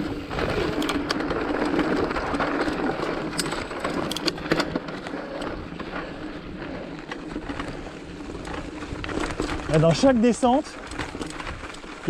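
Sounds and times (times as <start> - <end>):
bike rattling and knocking: 0.0 - 12.0
bike tyres crunching on gravel: 0.0 - 12.0.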